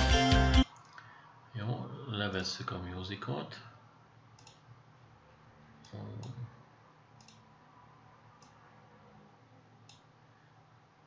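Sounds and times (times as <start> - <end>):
computer mouse clicking: 4.4 - 4.7, 7.2 - 7.5, 8.4 - 8.6, 9.8 - 10.1.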